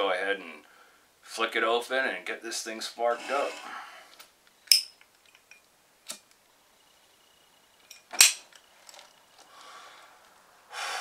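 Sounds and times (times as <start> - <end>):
person exhaling smoke: 9.5 - 11.0.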